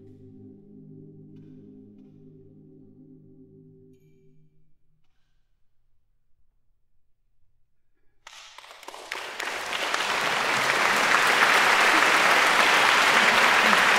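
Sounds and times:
audience applause: 8.3 - 13.9.

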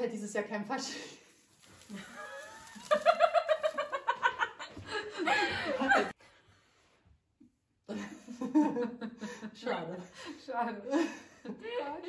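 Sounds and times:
women laughing: 1.9 - 6.2, 7.9 - 12.0.

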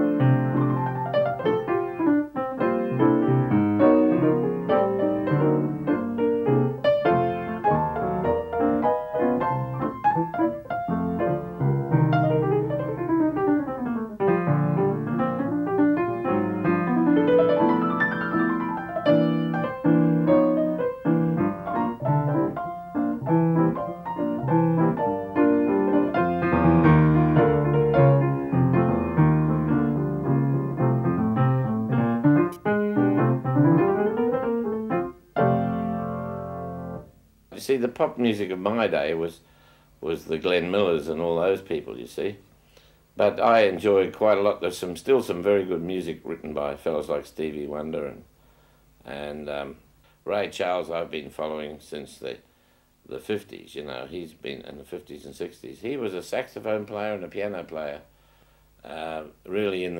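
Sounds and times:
solo piano music: 0.0 - 37.3.

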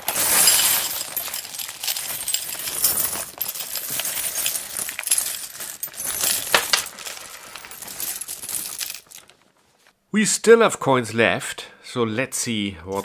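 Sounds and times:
coins pouring into glass bowl: 0.0 - 9.2.

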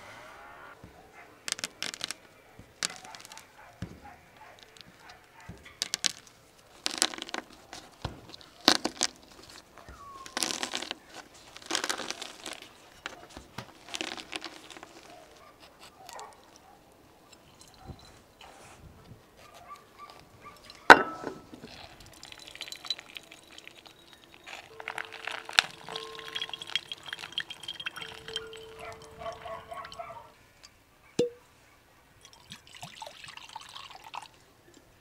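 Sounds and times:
pomegranate crunching in hands: 5.8 - 7.6, 8.3 - 15.3, 21.6 - 29.9.

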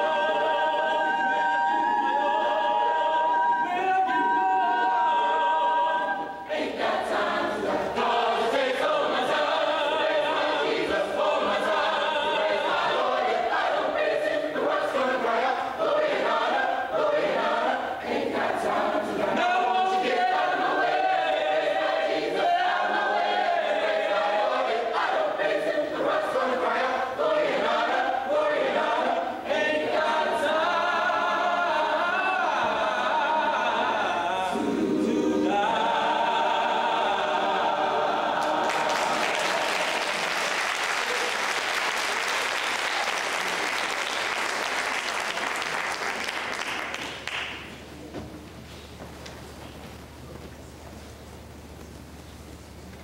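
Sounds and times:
mixed choir singing: 0.0 - 46.5
audience applause: 38.4 - 47.6.

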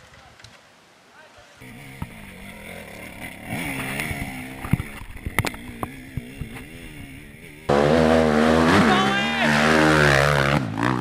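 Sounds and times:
dirt bike engine revving: 1.6 - 11.0
sharp clicks and knocks: 3.3 - 6.7.

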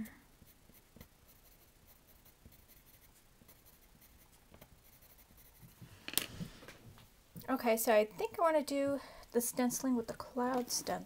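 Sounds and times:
pencil scratching on card: 0.4 - 6.0.

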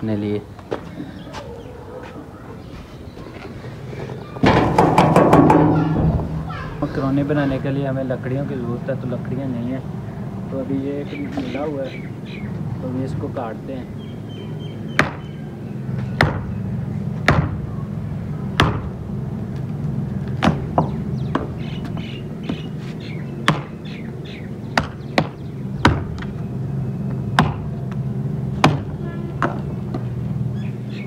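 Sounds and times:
steady low hum: 0.0 - 31.0
hand axe chopping wood: 18.6 - 18.9, 23.5 - 23.8, 27.4 - 27.6, 28.6 - 29.6.

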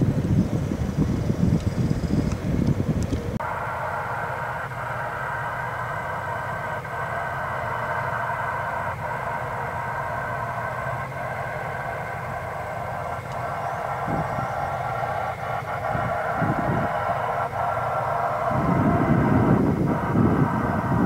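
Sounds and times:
distant gas jet roaring: 0.0 - 21.0.

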